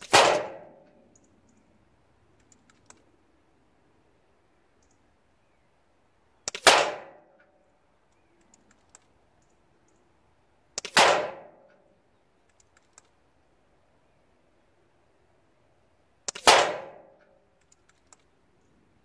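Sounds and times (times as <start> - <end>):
air rifle shots: 0.0 - 0.8, 6.5 - 7.2, 10.8 - 11.7, 16.3 - 17.2
faint clicks: 0.8 - 1.7, 2.3 - 3.2, 4.7 - 5.1, 7.3 - 10.1, 11.6 - 13.2, 17.1 - 18.8.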